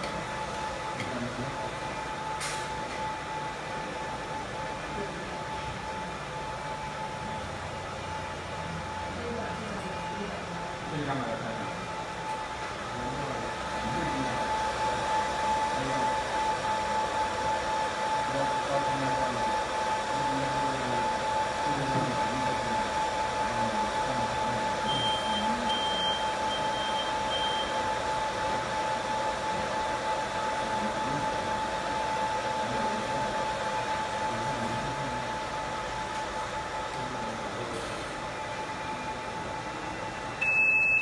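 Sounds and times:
hot-air blower whooshing: 0:10.9 - 0:25.7
short high beeps: 0:40.4 - 0:41.0.

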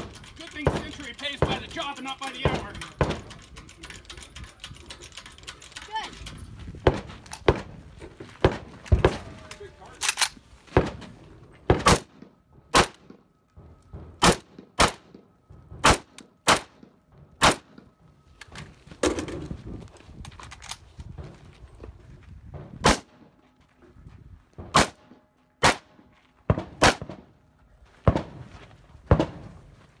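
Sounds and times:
rifle shots: 0:11.7 - 0:13.2, 0:14.2 - 0:15.2, 0:15.8 - 0:16.8, 0:17.4 - 0:17.8, 0:22.8 - 0:23.2, 0:24.7 - 0:27.3.

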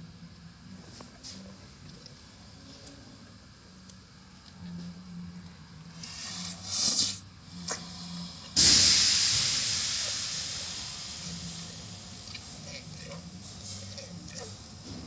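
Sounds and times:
car wash machinery hum: 0:00.0 - 0:15.0
loud hiss of spray: 0:06.0 - 0:15.0.

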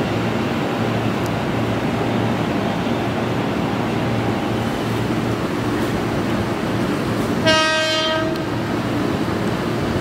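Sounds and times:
train rumble: 0:00.0 - 0:10.0
train horn blast: 0:07.4 - 0:08.5.

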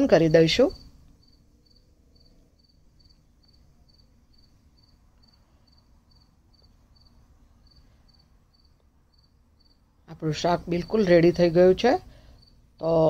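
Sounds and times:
cricket chirping: 0:00.0 - 0:09.9, 0:12.2 - 0:13.0
low background hum: 0:00.0 - 0:13.0.

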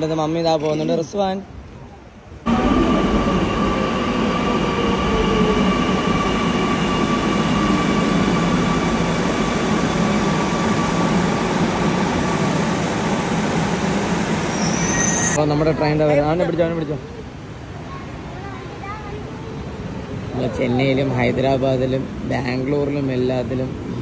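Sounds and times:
train rumbling past: 0:02.4 - 0:17.7, 0:19.6 - 0:24.0
thin high rising tone: 0:02.5 - 0:15.4.

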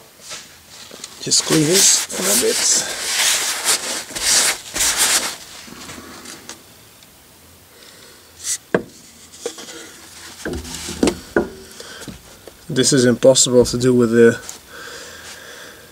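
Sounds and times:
cloth rag rubbing metal: 0:01.2 - 0:05.7.

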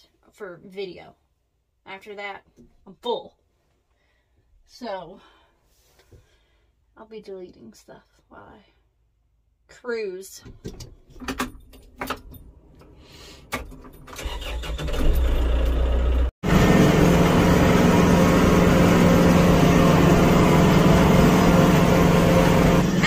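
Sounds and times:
tractor diesel engine: 0:14.1 - 0:23.0.

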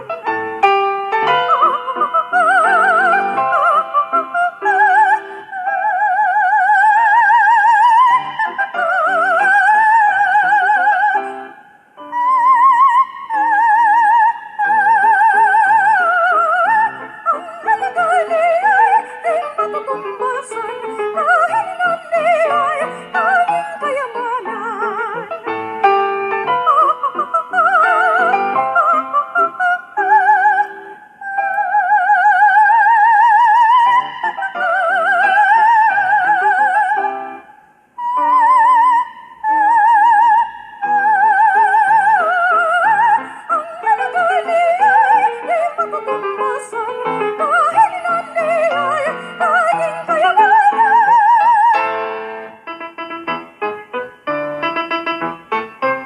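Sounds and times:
soprano singing operatically: 0:00.0 - 0:56.0
instrumental accompaniment: 0:43.8 - 0:56.0.

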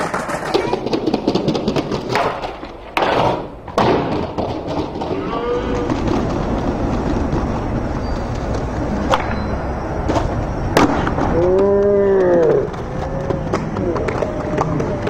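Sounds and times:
skateboard hitting ground: 0:00.0 - 0:15.0
skateboard wheels rolling on paving: 0:00.0 - 0:15.0.

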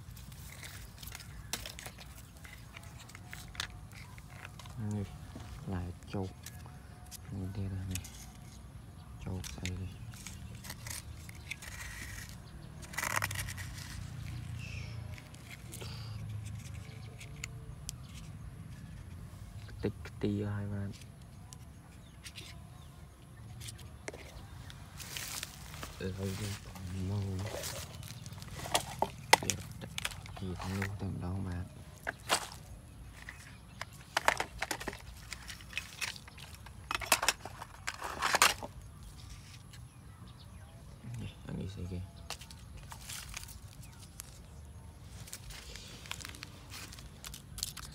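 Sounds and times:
dry leaves crackling: 0:00.0 - 0:08.5, 0:09.2 - 0:17.6, 0:23.6 - 0:39.8, 0:42.2 - 0:47.9
plastic toy trucks clattering: 0:00.2 - 0:05.0, 0:09.3 - 0:19.1, 0:26.4 - 0:31.0, 0:31.9 - 0:39.8, 0:42.3 - 0:44.4, 0:45.2 - 0:47.9
toy bucket scraping sandy soil: 0:09.6 - 0:17.5, 0:26.2 - 0:31.0.

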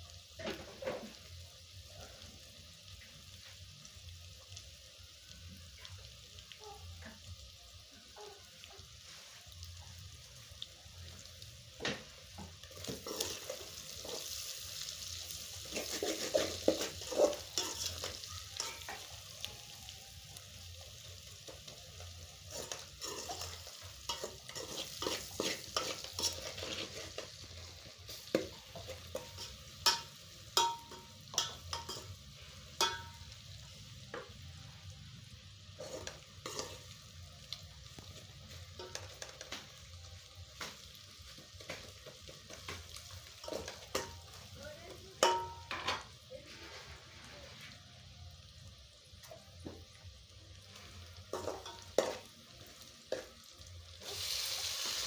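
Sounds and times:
frying sizzle: 0:00.0 - 0:55.0
metal spoon scraping a pot: 0:22.5 - 0:27.4.

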